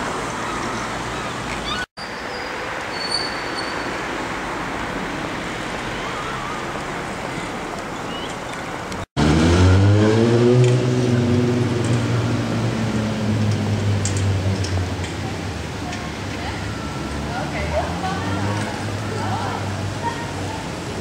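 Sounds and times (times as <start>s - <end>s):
outdoor traffic noise: 0.0s - 21.0s
low engine drone: 9.2s - 15.7s.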